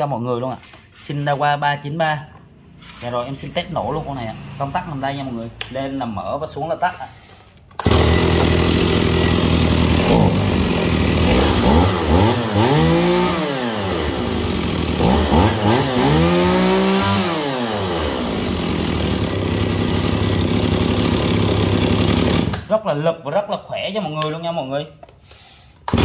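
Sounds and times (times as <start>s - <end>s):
chainsaw idling and revving: 7.8s - 22.7s.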